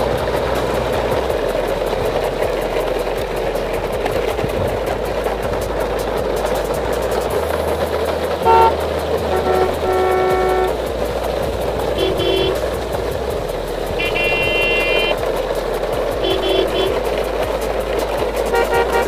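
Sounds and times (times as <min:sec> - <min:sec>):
steady noisy background: 0:00.0 - 0:19.0
vehicle horn toots: 0:08.4 - 0:10.8, 0:12.0 - 0:12.6, 0:14.0 - 0:15.2, 0:16.2 - 0:17.0, 0:18.5 - 0:19.0.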